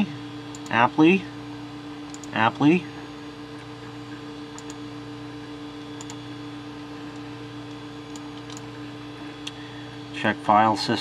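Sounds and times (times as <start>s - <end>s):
computer hum: 0.0s - 11.0s
hard drive ticks: 2.0s - 6.3s, 7.1s - 8.8s.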